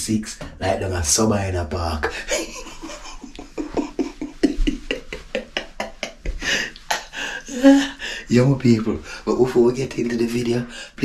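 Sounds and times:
man laughing hard: 2.1s - 8.0s.

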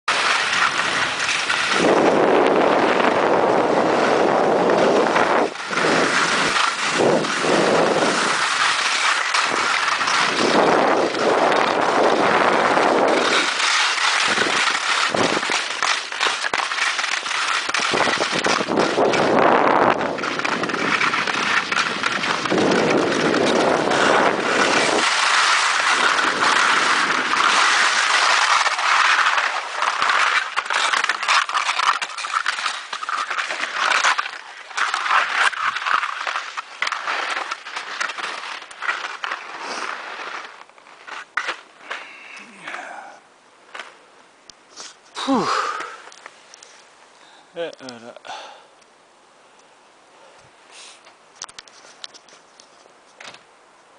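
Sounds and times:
sled scraping over snow: 0.1s - 43.2s
wind buffeting microphone: 1.6s - 8.5s, 9.4s - 13.6s, 17.8s - 27.7s.

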